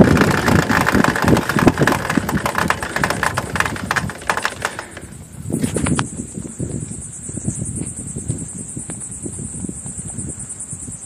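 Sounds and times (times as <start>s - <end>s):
motor trike engine running: 0.0s - 6.6s
wind buffeting microphone: 0.0s - 11.0s.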